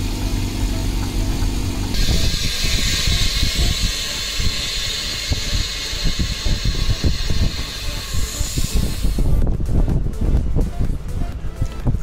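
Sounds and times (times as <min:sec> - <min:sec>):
compressed air hissing: 0:00.0 - 0:09.4
machine hum: 0:00.0 - 0:11.4.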